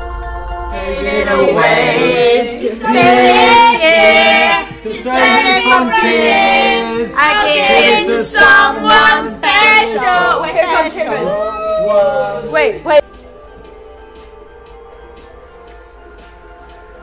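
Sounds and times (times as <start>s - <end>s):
people singing and shouting: 0.6s - 13.0s.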